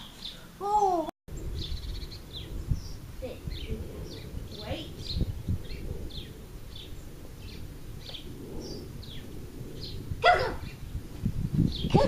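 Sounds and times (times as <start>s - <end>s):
small bird chirping: 0.0s - 11.0s
outdoor background noise: 0.0s - 12.0s.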